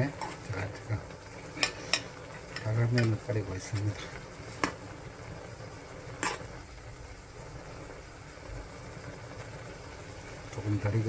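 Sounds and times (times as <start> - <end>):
noodles bubbling in pot: 0.0 - 11.0.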